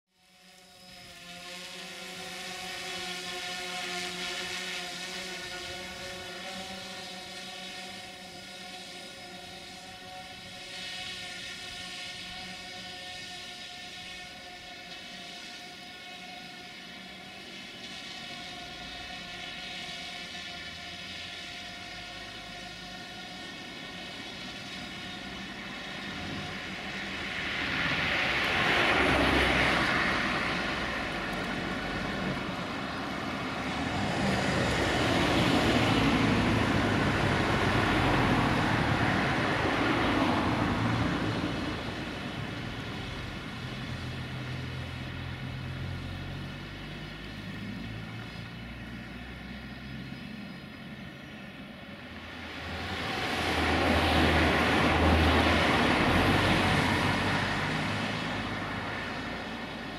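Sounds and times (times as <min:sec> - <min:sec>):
drone propellers whining: 0:00.1 - 0:59.9
rushes of noise: 0:15.4 - 0:59.9.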